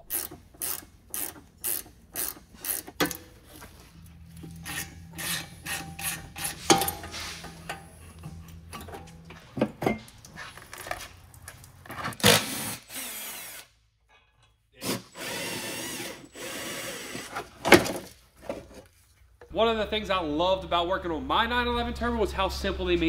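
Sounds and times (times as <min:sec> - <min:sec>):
hand tools clicking and scraping metal: 0:00.0 - 0:13.6
power tool running: 0:12.2 - 0:13.7, 0:14.8 - 0:17.5.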